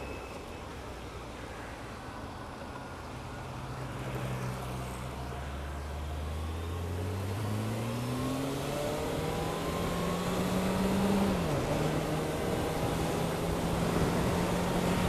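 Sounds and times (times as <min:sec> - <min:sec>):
motorcycle engine accelerating: 0:07.0 - 0:15.0
wind rush: 0:12.6 - 0:15.0.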